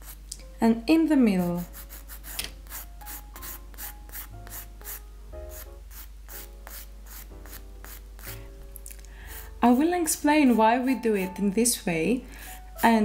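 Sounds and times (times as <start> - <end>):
nail file rasping on fingernail: 1.7 - 8.4.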